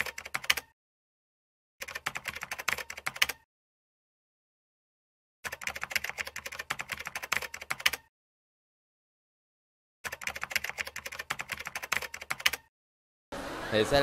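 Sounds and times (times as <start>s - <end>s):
keyboard typing clicks: 0.0s - 0.7s, 1.8s - 3.4s, 5.5s - 8.1s, 10.1s - 12.7s.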